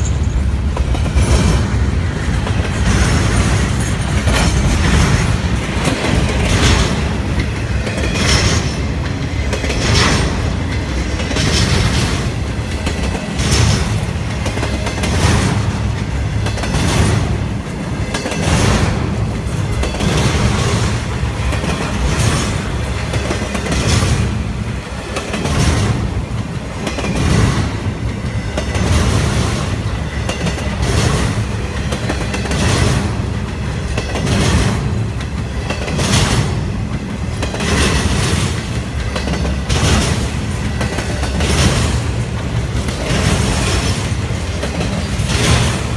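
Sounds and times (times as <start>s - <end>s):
freight cars rumbling on rails: 0.0s - 45.9s
wheels clacking over track: 0.0s - 45.9s.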